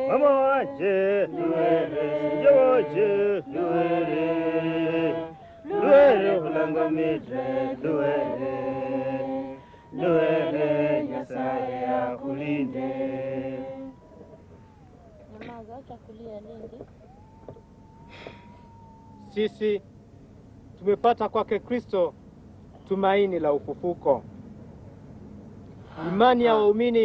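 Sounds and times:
voices singing chant-like song: 0.0s - 14.1s.

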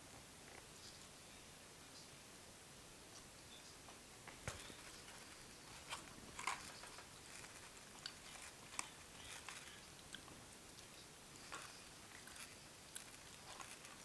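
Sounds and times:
steady hiss: 0.0s - 14.0s
chewing and mouth noises: 4.9s - 14.0s.

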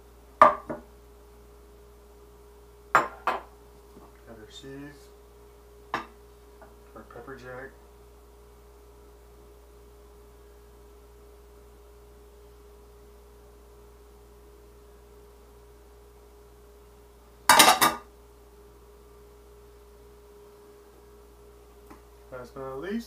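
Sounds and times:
background hum: 0.0s - 23.0s
plate clattering on counter: 17.5s - 18.1s.

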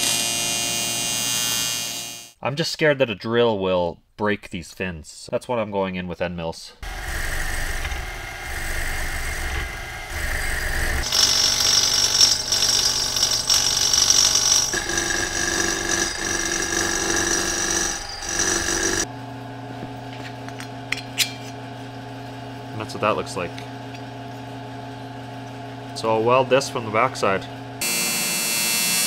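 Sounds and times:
high-pitched metal cutting: 0.0s - 2.4s, 6.8s - 19.1s, 27.8s - 29.0s
milling machine motor and spindle: 6.8s - 19.1s.

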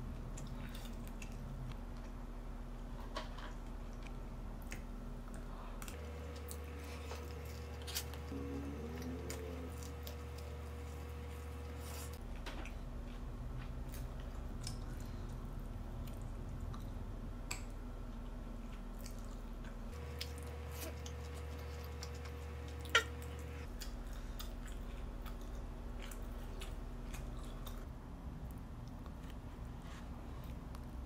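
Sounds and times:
low steady hum: 0.0s - 31.0s
chewing and biting food: 4.6s - 17.0s, 18.1s - 27.9s.

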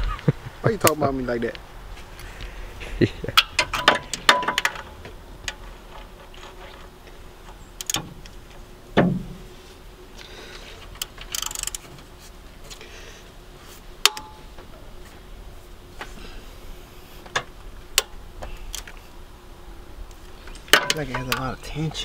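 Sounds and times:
metal tools clinking: 3.4s - 6.8s, 20.5s - 22.0s
ratchet wrench clicking: 11.0s - 11.8s.

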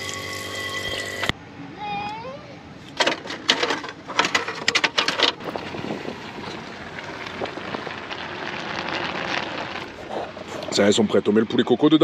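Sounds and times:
sharp clattering: 3.0s - 10.7s.

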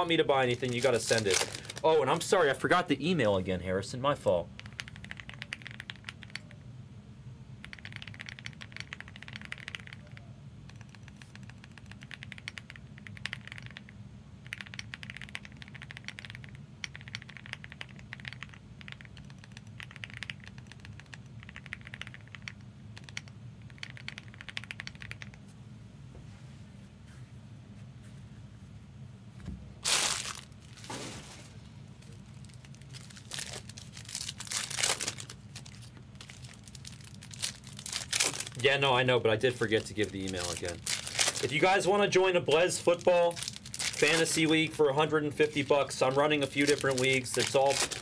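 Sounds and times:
foil wrapper crinkling and tearing: 0.1s - 2.0s, 29.8s - 38.6s, 39.6s - 41.9s, 42.5s - 44.7s, 45.4s - 48.0s
keyboard typing: 4.6s - 6.6s, 7.6s - 25.4s.

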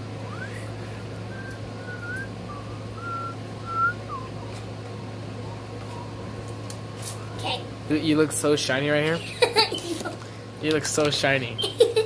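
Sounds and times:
steady low hum: 0.0s - 12.0s
person whistling: 0.3s - 4.4s.

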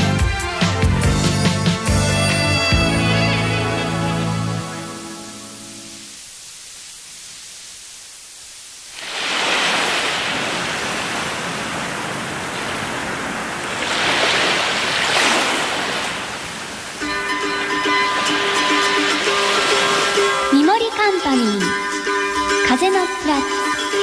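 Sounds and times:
tape hiss: 2.3s - 24.0s
plucked tune: 17.0s - 24.0s.

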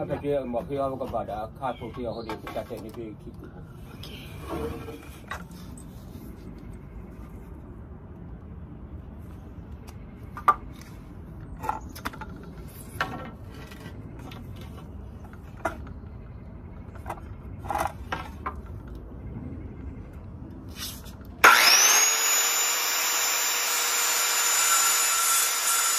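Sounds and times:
low steady rumble: 3.2s - 21.4s.

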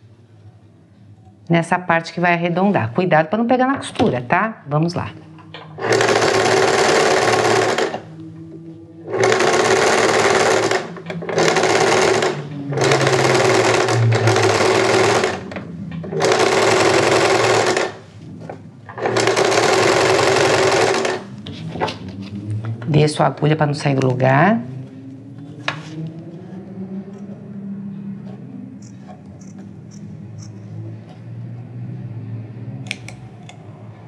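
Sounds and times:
electric sewing machine stitching: 5.8s - 8.1s, 9.1s - 18.1s, 18.9s - 21.3s.

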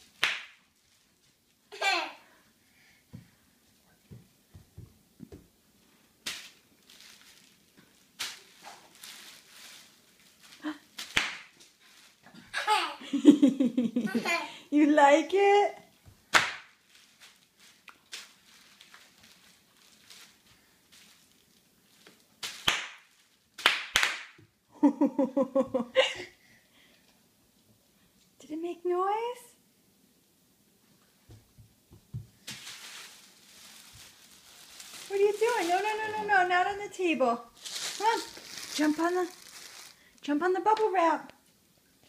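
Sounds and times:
bubble wrap crackling: 0.0s - 2.0s, 5.7s - 12.3s, 16.2s - 24.4s, 32.3s - 41.0s.

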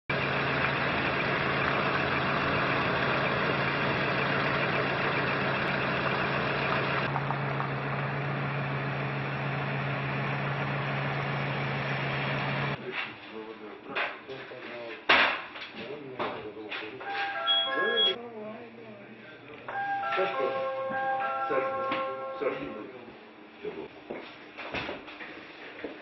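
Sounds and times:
engines idling: 0.1s - 12.8s.

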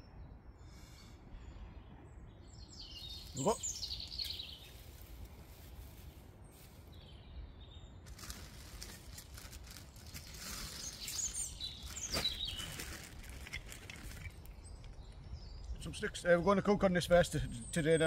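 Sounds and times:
songbirds chirping: 0.0s - 18.0s
plastic bag rustling: 8.0s - 14.5s
tinder crackling as it burns: 8.0s - 15.2s.

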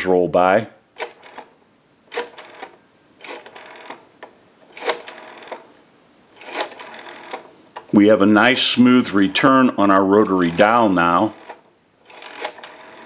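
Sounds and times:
rotary dial clicking back: 1.0s - 1.5s, 2.1s - 5.7s, 6.4s - 7.9s, 11.3s - 13.0s.

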